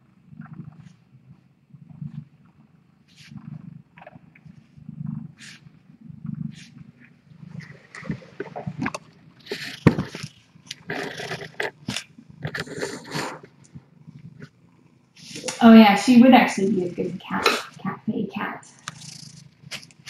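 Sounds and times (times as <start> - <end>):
cat purring: 0.0 - 20.0
faint scratchy rustles: 0.7 - 15.6.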